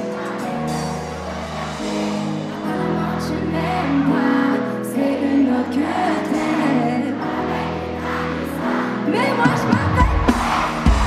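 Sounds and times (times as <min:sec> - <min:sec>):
woman singing into a microphone: 0:02.5 - 0:10.3.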